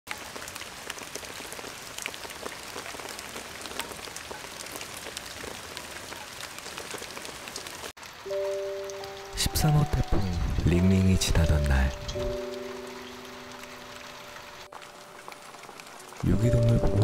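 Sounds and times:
drops dripping from roof edge: 0.1s - 17.0s.

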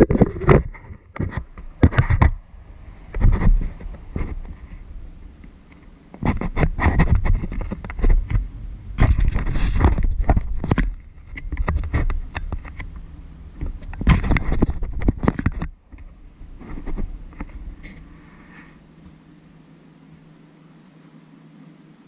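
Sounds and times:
hand rubbing on microphone: 0.0s - 19.7s
heavy low rumble: 1.4s - 19.6s.

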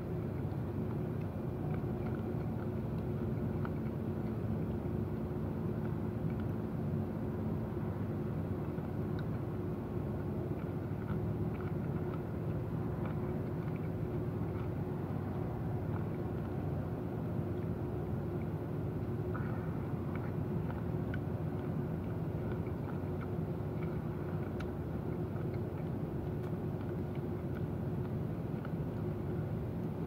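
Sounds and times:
low mechanical hum: 0.0s - 30.0s
person chewing grapes: 10.4s - 16.6s, 20.1s - 30.0s.

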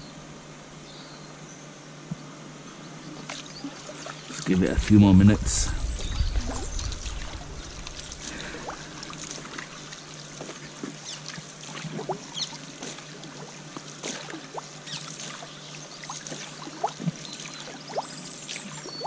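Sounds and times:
pond water trickling and splashing: 3.1s - 4.5s, 6.9s - 19.0s
steady low hum: 4.2s - 10.8s.

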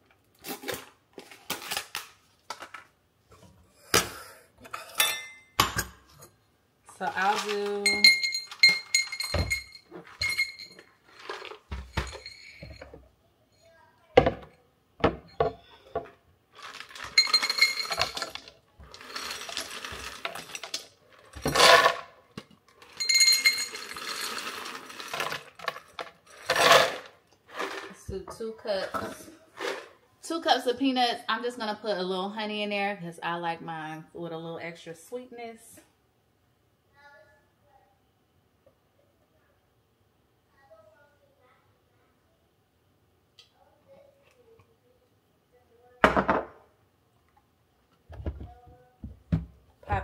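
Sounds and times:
kitchenware clattering and clinking: 2.5s - 13.0s, 14.2s - 30.0s, 46.0s - 46.7s
peanuts rattling in a metal cup: 7.0s - 12.7s, 16.6s - 22.1s, 22.8s - 28.0s.

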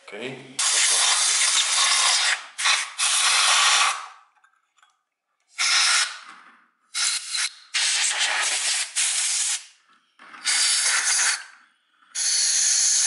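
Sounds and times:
compressed air hissing bursts: 0.6s - 4.1s, 5.6s - 6.2s, 6.9s - 9.7s, 10.4s - 11.5s, 12.2s - 13.0s.

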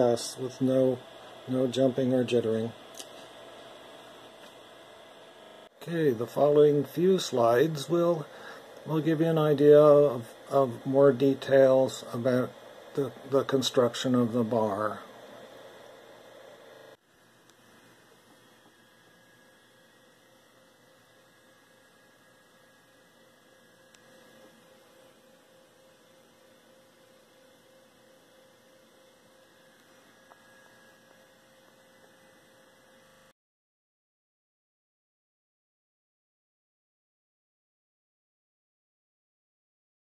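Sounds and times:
low hiss: 0.0s - 17.6s
faint electrical hum: 0.0s - 33.4s.

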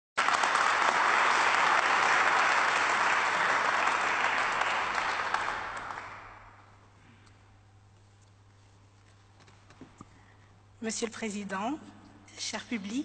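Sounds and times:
audience applauding: 0.2s - 6.7s.

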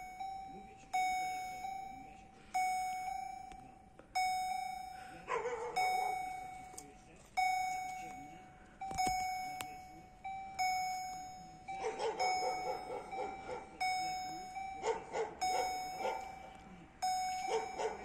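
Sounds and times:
crossing warning bell dinging: 0.0s - 18.0s
dog barking: 5.2s - 6.3s, 11.7s - 13.8s, 14.7s - 16.6s, 17.3s - 18.0s.

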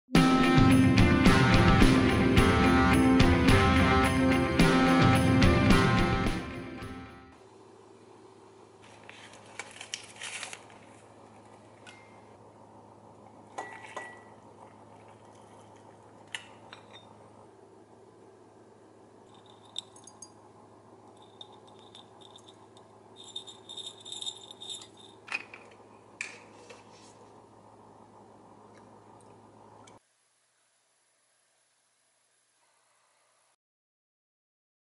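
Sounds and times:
steady low hum: 7.4s - 30.0s
ceramic cup clinking: 13.6s - 14.4s, 16.5s - 17.2s.

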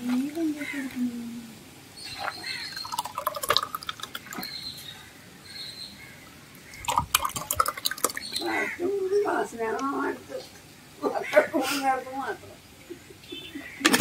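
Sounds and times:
milkshake glugging into a glass: 2.2s - 4.5s, 6.7s - 8.4s.

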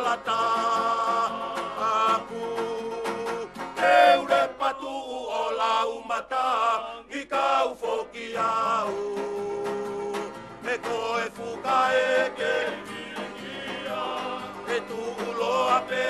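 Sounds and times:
acoustic guitars: 0.0s - 16.0s
men singing together: 0.0s - 16.0s.

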